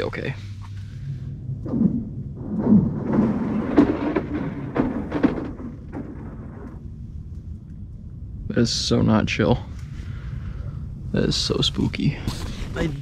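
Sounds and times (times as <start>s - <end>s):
lake ice cracking and booming: 1.7s - 7.0s.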